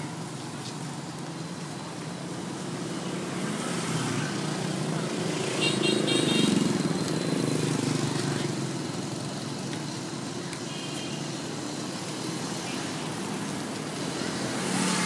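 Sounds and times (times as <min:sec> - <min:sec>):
street traffic noise: 0:00.0 - 0:15.0
car passing close: 0:14.1 - 0:15.0.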